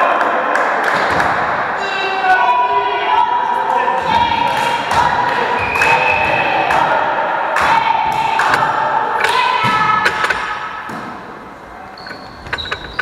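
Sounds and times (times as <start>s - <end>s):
players calling out: 0.6s - 13.0s
volleyball hits and thuds: 9.3s - 11.3s.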